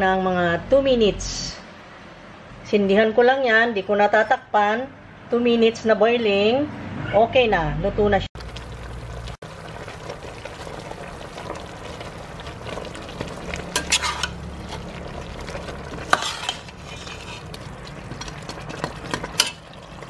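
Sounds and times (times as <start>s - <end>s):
broth bubbling in a pot: 8.4s - 20.0s
ladle scraping a metal pot: 13.0s - 19.7s.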